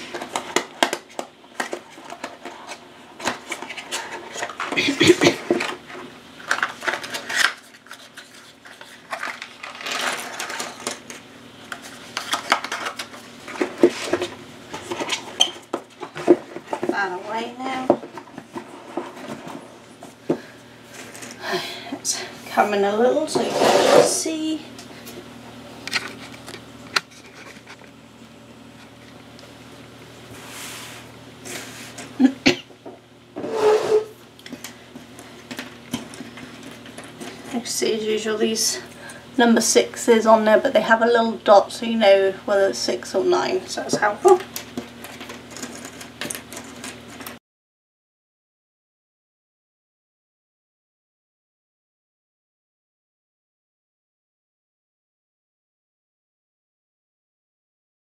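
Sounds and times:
puzzle pieces rustling and clicking: 0:05.4 - 0:15.4, 0:44.5 - 0:47.4
puzzle pieces clattering on table: 0:09.0 - 0:11.1, 0:45.0 - 0:47.3.

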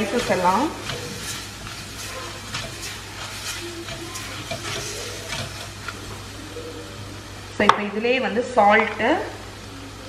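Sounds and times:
spatula scraping a pan: 0:00.0 - 0:06.3
food sizzling in a pot: 0:00.0 - 0:10.0.

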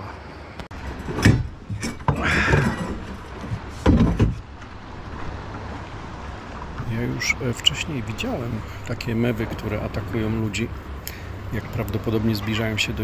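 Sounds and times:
dull knocks and thuds: 0:01.1 - 0:04.6.

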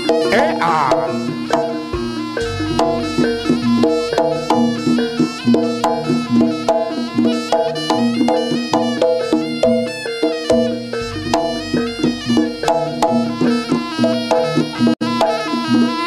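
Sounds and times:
drum strokes: 0:00.0 - 0:15.6
gamelan metal keyed instruments: 0:00.0 - 0:16.0.

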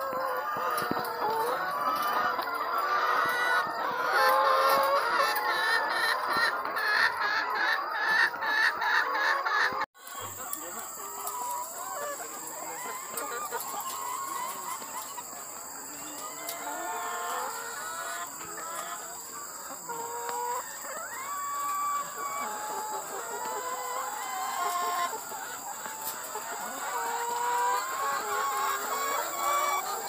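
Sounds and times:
hens clucking: 0:00.0 - 0:30.0.

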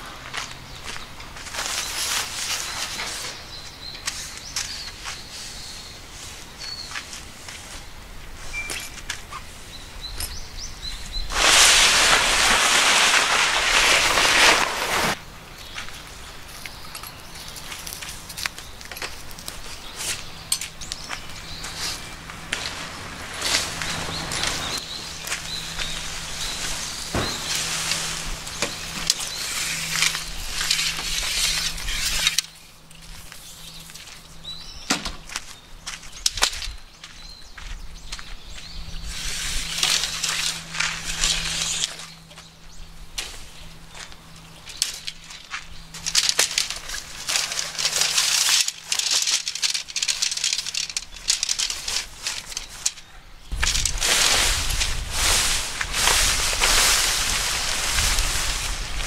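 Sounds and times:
pole rubbing through sleeve: 0:11.3 - 0:15.2
tent fabric rustling: 0:11.3 - 0:15.2, 0:21.7 - 0:32.4, 0:46.0 - 0:52.9, 0:53.6 - 0:59.0.

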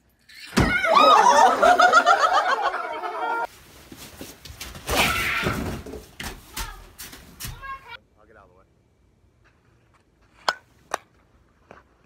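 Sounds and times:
group of people laughing: 0:00.9 - 0:03.5.

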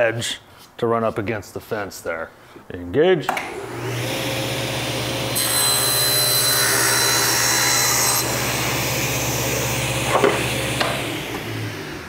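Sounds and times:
table saw cutting: 0:03.3 - 0:12.0
saw motor humming: 0:03.4 - 0:12.0.

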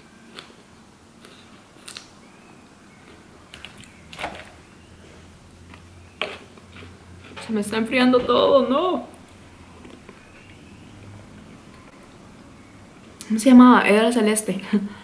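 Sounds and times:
quiet chewing: 0:01.2 - 0:02.1, 0:05.5 - 0:07.5, 0:09.1 - 0:12.2.

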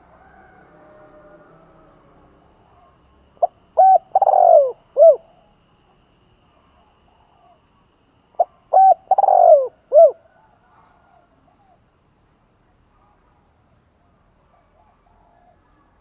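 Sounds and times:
dove cooing: 0:00.0 - 0:05.6, 0:08.3 - 0:11.9.

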